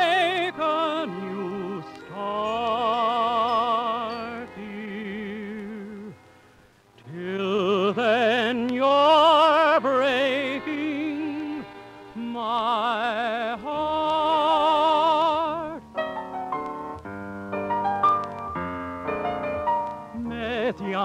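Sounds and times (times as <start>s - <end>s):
man singing a ballad: 0.0s - 6.2s, 7.1s - 15.8s, 20.1s - 21.0s
instrumental accompaniment: 0.0s - 21.0s.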